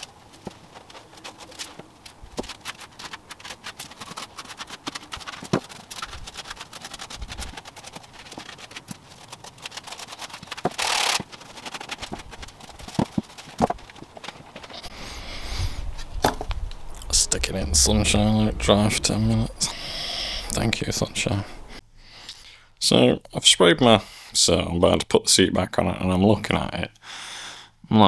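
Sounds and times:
foam padding tearing: 0:00.0 - 0:14.9
stiff brush on wood: 0:00.0 - 0:15.7.

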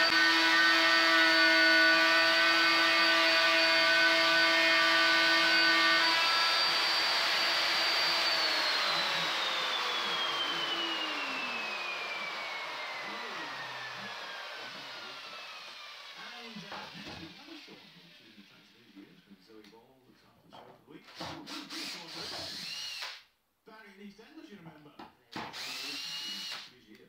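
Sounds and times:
router machine whine: 0:00.0 - 0:18.6, 0:21.5 - 0:23.2, 0:25.4 - 0:26.7.

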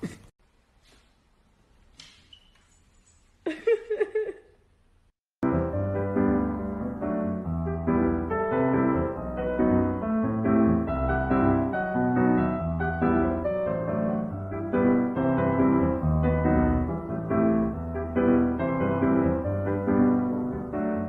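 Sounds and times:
piano music: 0:05.4 - 0:21.0.

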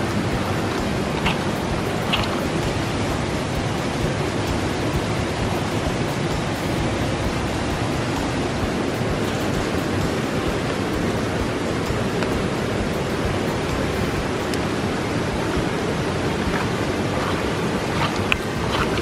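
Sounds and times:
river rushing: 0:00.0 - 0:19.0.

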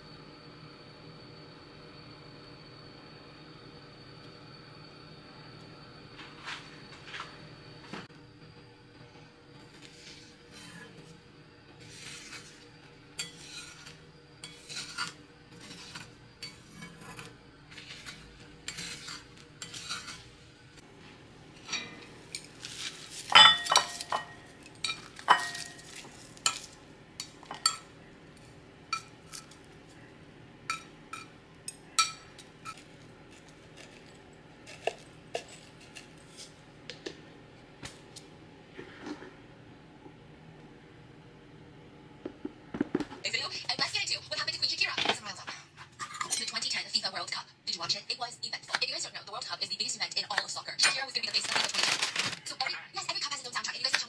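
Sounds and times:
chopsticks scraping frying pan: 0:09.8 - 0:11.1, 0:11.8 - 0:12.6, 0:13.2 - 0:20.4, 0:21.6 - 0:29.6, 0:30.7 - 0:36.6
clinks against ceramic bowl: 0:23.4 - 0:25.8.

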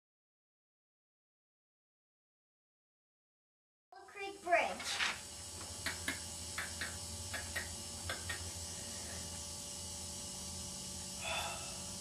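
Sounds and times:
low electrical hum: 0:04.0 - 0:12.0.

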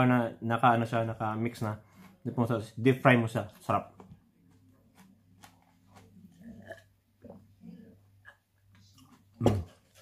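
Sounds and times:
soft breathing: 0:01.8 - 0:02.3
man sipping and swallowing: 0:06.3 - 0:07.4.

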